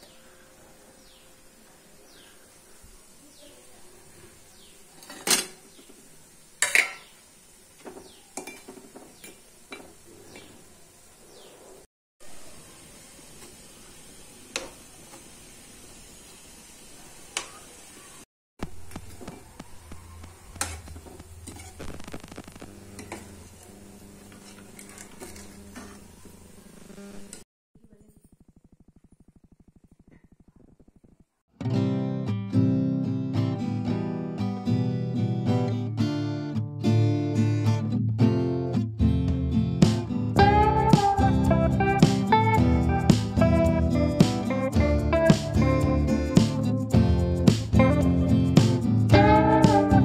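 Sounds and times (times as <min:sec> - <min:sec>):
metal spoon clanking on pan: 0:05.0 - 0:05.6, 0:06.6 - 0:07.1, 0:07.8 - 0:10.5
metal spoon scraping metal pan: 0:20.6 - 0:21.8.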